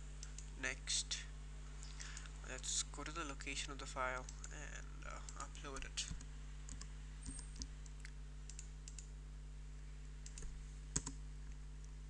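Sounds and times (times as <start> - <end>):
low hum: 0.0 - 12.0
computer mouse clicks: 5.3 - 9.1, 10.2 - 11.2.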